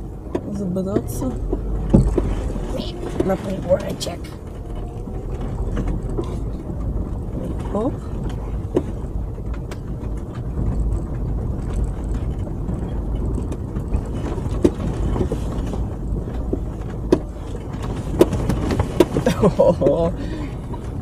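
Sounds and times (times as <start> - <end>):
car engine running low: 0.0 - 21.0
knocks and rattles: 0.0 - 21.0.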